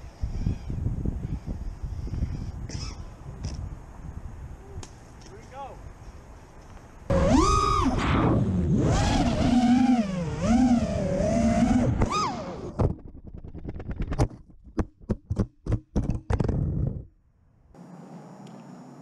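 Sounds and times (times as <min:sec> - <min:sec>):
quadcopter motors whining: 0:07.1 - 0:12.8.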